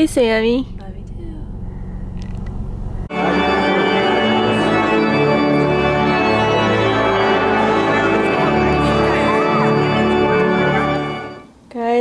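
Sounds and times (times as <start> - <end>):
low car cabin rumble: 0.0 - 3.1
organ playing sustained chords: 3.0 - 11.5.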